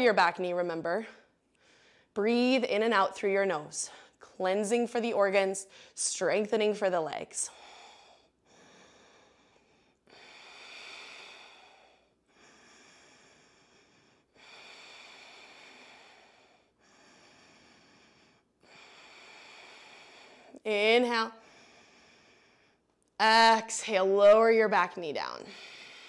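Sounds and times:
woman breathing through nose: 0:07.5 - 0:20.6, 0:21.4 - 0:22.9, 0:25.4 - 0:26.0.

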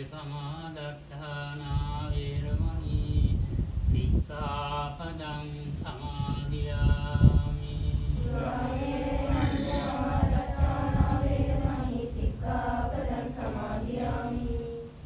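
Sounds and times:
group chanting in unison: 0:08.2 - 0:14.9.

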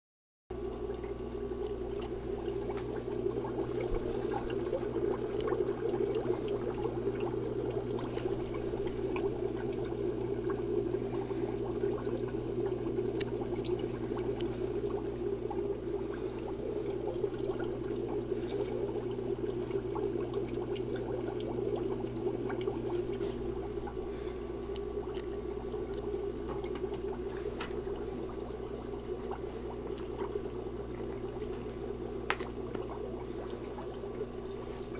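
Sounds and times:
air bubbling through filter: 0:00.5 - 0:34.9
small bubble pops: 0:01.0 - 0:18.3, 0:24.6 - 0:34.9.

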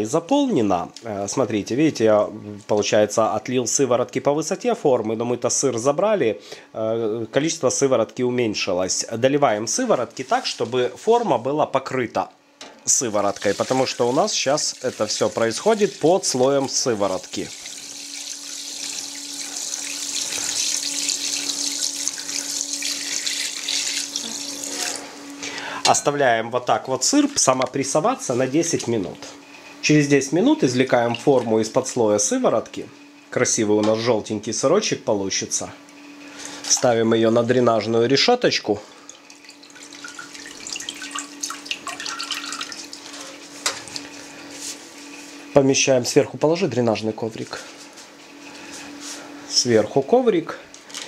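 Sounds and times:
liquid pouring and splashing: 0:13.2 - 0:25.0, 0:38.9 - 0:43.2.

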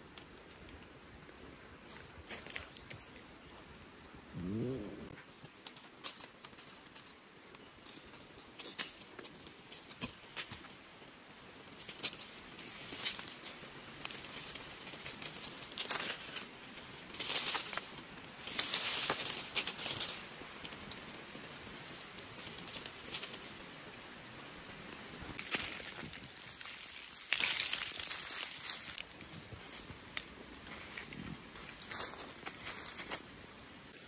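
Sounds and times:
rustling and scraping: 0:04.4 - 0:24.0, 0:25.3 - 0:34.0.

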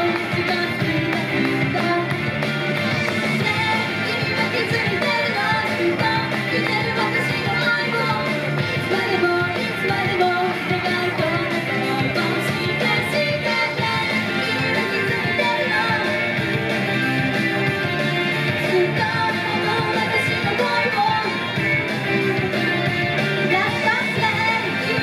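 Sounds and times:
woman singing into a microphone: 0:00.0 - 0:02.3, 0:03.3 - 0:16.3, 0:18.6 - 0:21.6, 0:23.5 - 0:25.0
pop backing music: 0:00.0 - 0:25.0.

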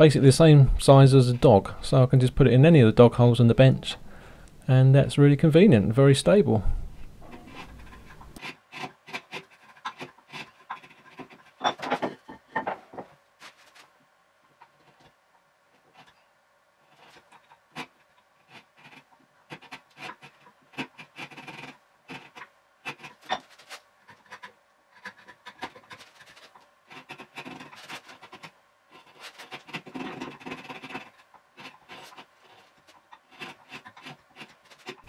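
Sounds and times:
chisel scraping wood: 0:07.0 - 0:11.9, 0:16.8 - 0:35.0.

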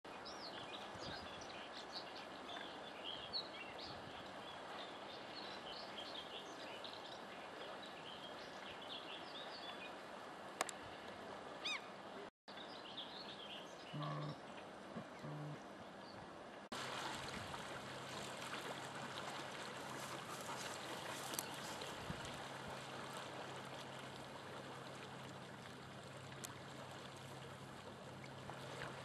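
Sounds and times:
outdoor background noise: 0:00.1 - 0:29.0
short low hum: 0:15.0 - 0:15.6.

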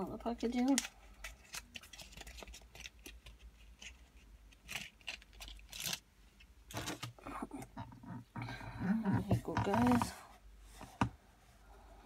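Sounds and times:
packaging rustles: 0:00.6 - 0:06.0
packaging clicks and crinkles: 0:00.6 - 0:07.2.

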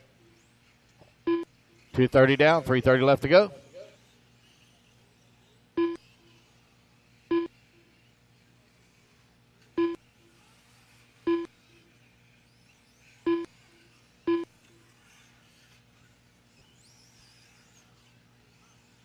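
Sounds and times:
short electronic beeps: 0:01.3 - 0:01.5, 0:05.8 - 0:06.0, 0:07.3 - 0:07.5, 0:09.8 - 0:10.0, 0:11.3 - 0:11.5, 0:13.3 - 0:13.5, 0:14.3 - 0:14.5.

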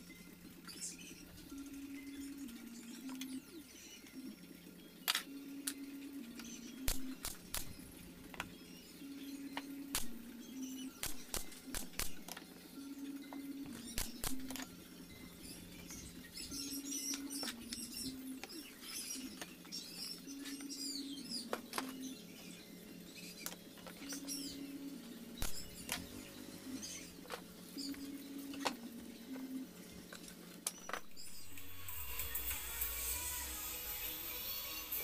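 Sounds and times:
small birds chirping: 0:00.0 - 0:35.0.

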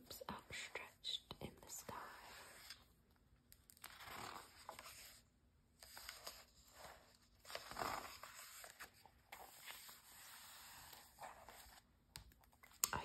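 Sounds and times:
magazine pages rustling: 0:03.7 - 0:05.2, 0:05.8 - 0:11.9.

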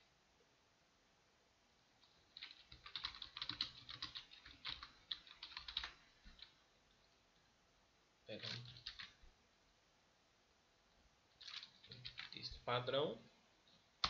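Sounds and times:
typing on a computer keyboard: 0:02.0 - 0:06.6, 0:08.4 - 0:09.2, 0:11.4 - 0:12.5.

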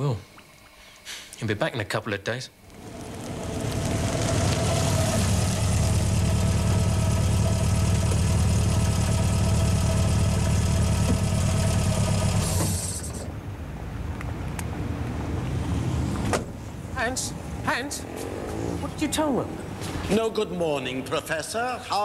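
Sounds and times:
car engine idling: 0:02.6 - 0:13.4.

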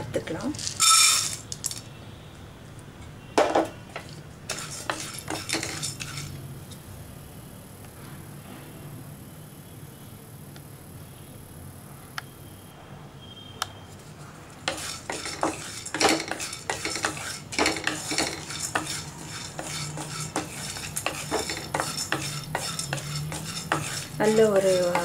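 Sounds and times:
seeds rattling in a pan: 0:00.5 - 0:01.9.

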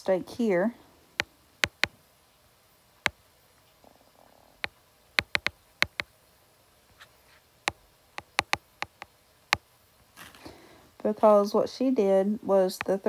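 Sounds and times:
stylus tapping on glass screen: 0:01.6 - 0:02.0, 0:05.2 - 0:06.1, 0:07.7 - 0:09.6.

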